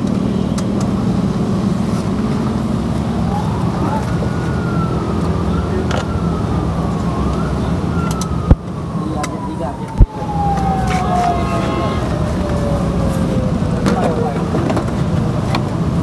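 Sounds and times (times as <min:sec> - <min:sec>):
steady engine drone: 0:00.0 - 0:16.0
distant siren wailing: 0:02.7 - 0:14.5.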